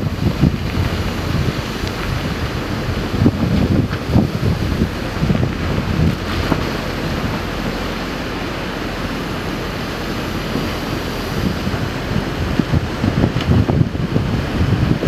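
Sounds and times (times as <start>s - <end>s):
wind and sea water rushing: 0.0s - 15.0s
wind buffeting microphone: 0.0s - 15.0s.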